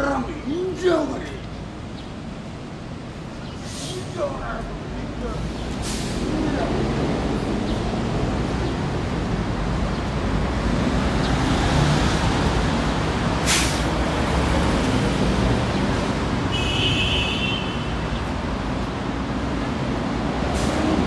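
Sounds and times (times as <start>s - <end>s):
city road traffic rumble: 0.0s - 21.0s
short sharp hiss: 13.4s - 13.9s.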